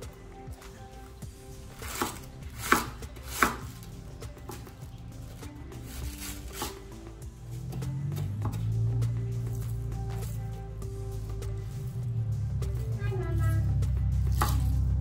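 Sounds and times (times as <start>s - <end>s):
knife slicing cabbage: 1.7s - 3.9s, 5.8s - 6.8s, 14.3s - 14.8s.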